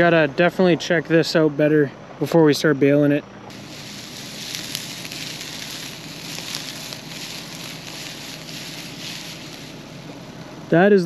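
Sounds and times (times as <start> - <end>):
dry hay rustling and crackling: 3.5 - 10.5.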